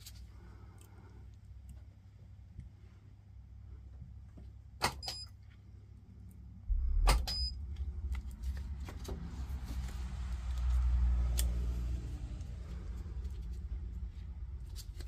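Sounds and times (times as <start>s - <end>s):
low rumble: 6.6s - 15.0s
short high beep: 7.1s - 7.6s.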